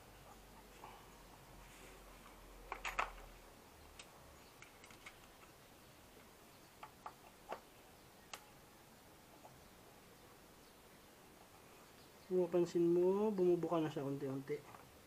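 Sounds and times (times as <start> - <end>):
faint plastic clicks and ticks: 8.3 - 8.5.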